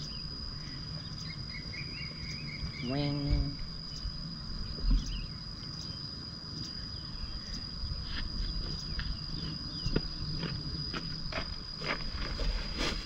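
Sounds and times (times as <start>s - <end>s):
insect call: 0.0s - 13.0s.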